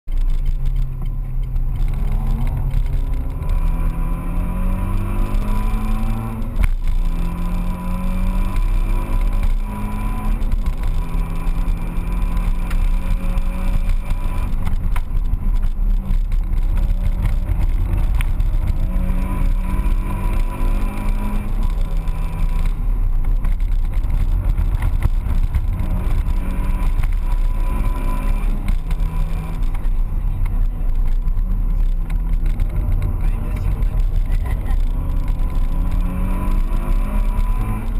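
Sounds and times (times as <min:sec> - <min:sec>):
road and wind rumble: 0:00.0 - 0:37.9
car engine accelerating: 0:00.1 - 0:37.9.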